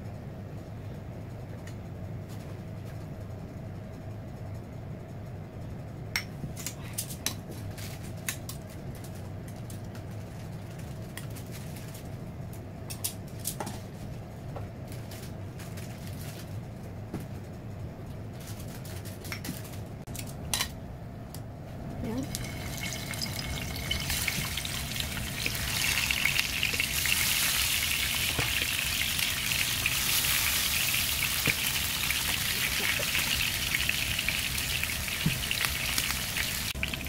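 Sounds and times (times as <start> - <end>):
low hum: 20.8 - 37.0.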